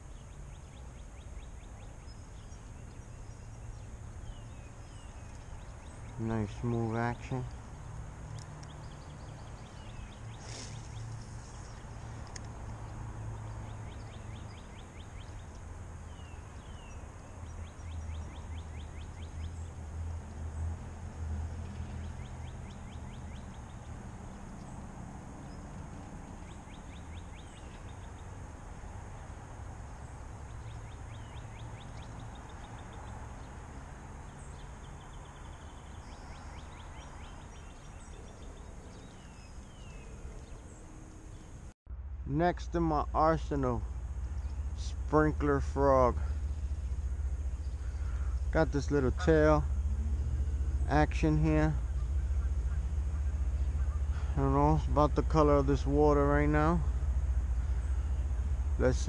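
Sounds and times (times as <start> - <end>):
small birds calling: 0.0 - 19.8, 29.9 - 33.6, 34.2 - 41.7, 43.2 - 58.9
steady low rumble: 41.9 - 59.0.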